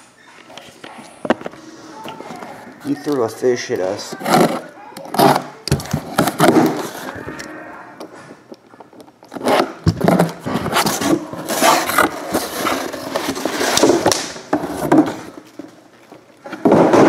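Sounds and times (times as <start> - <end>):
cardboard box scraping and rustling: 9.3 - 14.0.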